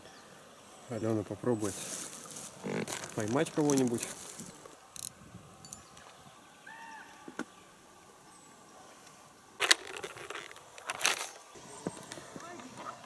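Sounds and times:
fabric case rustling: 1.8 - 4.6, 9.6 - 13.0
small clicks of fishing gear: 2.6 - 6.2, 9.0 - 12.9.

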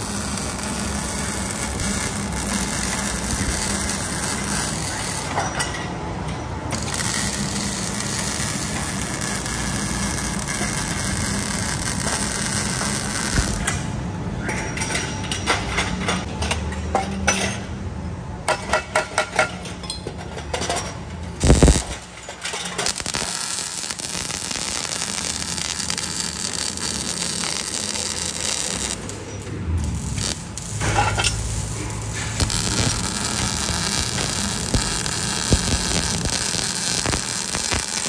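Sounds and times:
arc welding hiss and buzz: 0.0 - 5.4, 6.7 - 13.9, 21.4 - 38.0.

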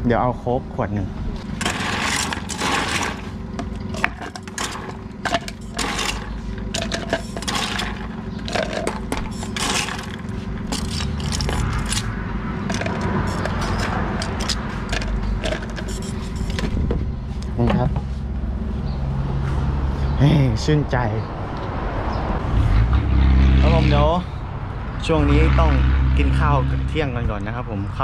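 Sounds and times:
steady low hum: 0.0 - 21.5
glasses and utensils clinking: 1.6 - 12.1, 12.7 - 16.7.

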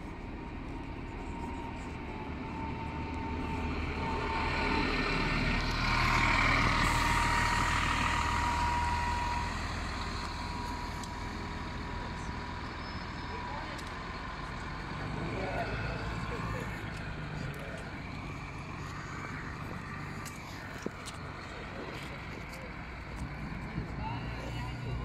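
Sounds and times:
bus diesel engine driving past: 0.0 - 25.0.

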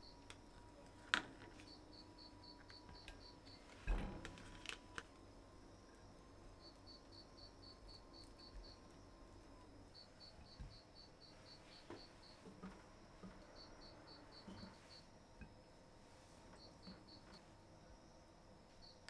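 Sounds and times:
faint high pulsed chirping: 0.0 - 0.4, 1.6 - 3.8, 5.3 - 19.0.

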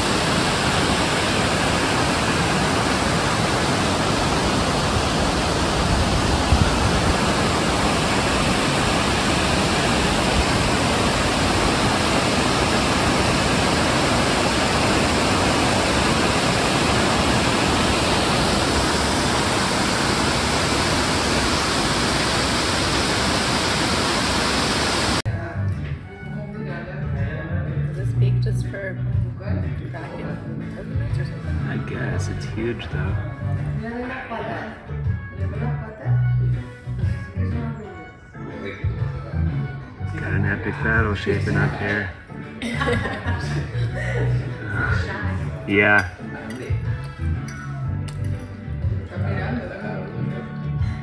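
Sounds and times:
waterfall roaring: 0.0 - 25.2.

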